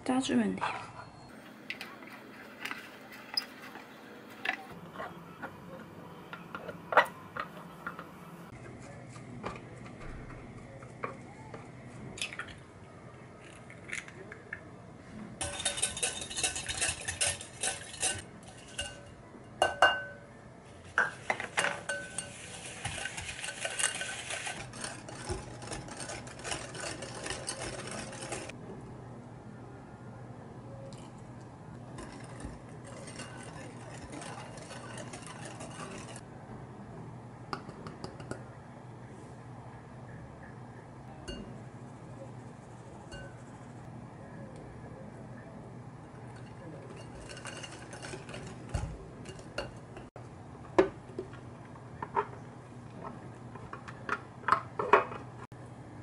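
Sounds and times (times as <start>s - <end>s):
whisk beating in glass bowl: 15.4s - 19.8s, 21.6s - 28.5s, 32.0s - 36.2s, 46.3s - 49.8s.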